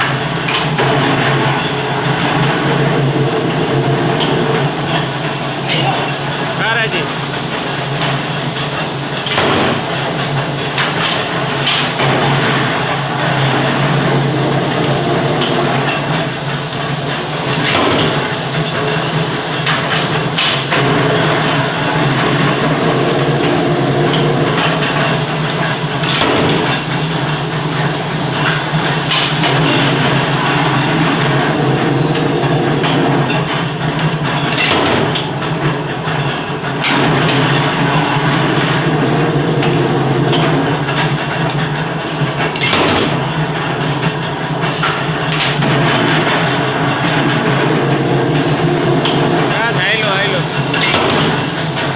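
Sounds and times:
power press low hum: 0.0 - 51.9.

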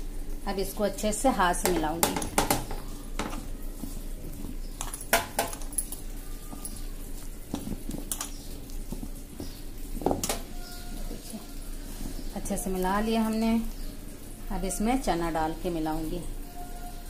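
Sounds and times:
hand mixing wet paste: 1.1 - 17.0.

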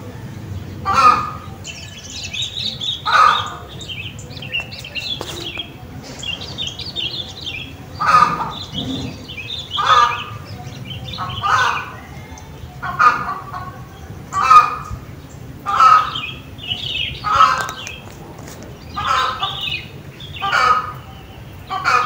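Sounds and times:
lower bird call: 0.0 - 15.1
birds chirping and twittering: 0.0 - 22.0.

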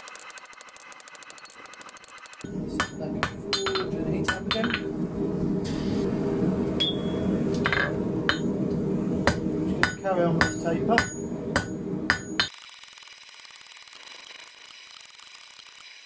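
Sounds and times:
gas forge roaring: 2.4 - 12.5
hammer ringing on anvil: 2.8 - 4.8, 6.8 - 8.5, 9.3 - 12.5.

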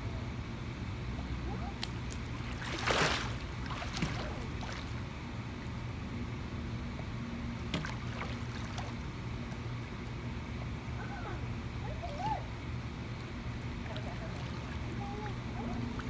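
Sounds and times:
low steady hum: 0.0 - 16.0
swimmer splashing into water: 1.8 - 5.1
water lapping: 1.8 - 5.2, 7.7 - 9.7, 13.1 - 16.0.

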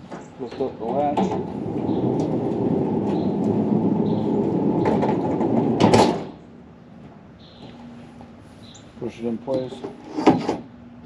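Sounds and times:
tool chest rolling rumble: 0.4 - 6.5.

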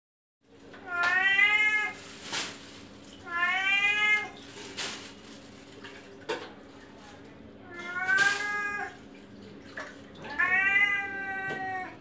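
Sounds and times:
cat meowing: 0.8 - 2.0, 3.2 - 4.4, 7.6 - 9.0, 10.2 - 12.0.

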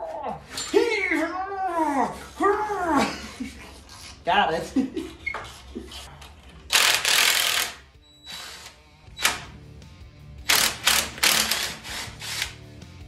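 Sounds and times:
socket ratchet clicking: 10.5 - 12.6.

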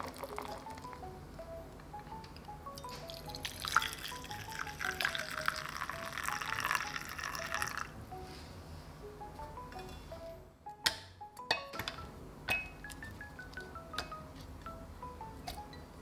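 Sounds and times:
liquid pouring and splashing: 0.0 - 0.8, 3.0 - 7.9
tinkling background music: 0.0 - 16.0.

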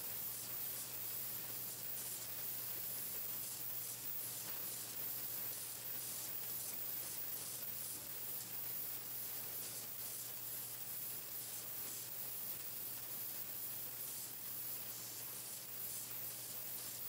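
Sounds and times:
machine hissing: 0.0 - 17.0.

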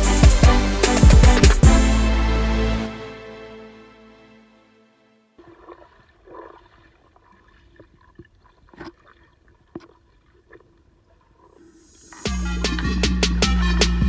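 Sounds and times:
loud music with a beat: 0.0 - 3.2, 12.2 - 14.0
muffled underwater sloshing: 5.4 - 13.0.

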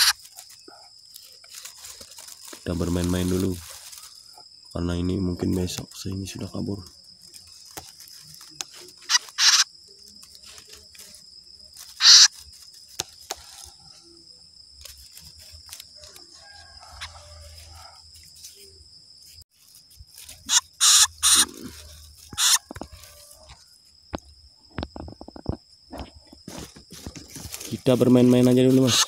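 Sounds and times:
songbird chicks squawking: 0.0 - 0.3, 8.9 - 9.7, 11.9 - 12.5, 20.4 - 22.8.

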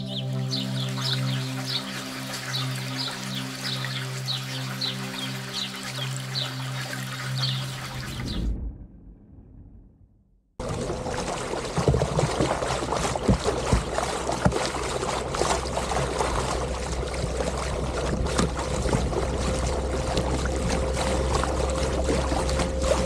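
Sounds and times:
steady low hum: 10.6 - 23.0
water splashing against kayak: 10.6 - 23.0.

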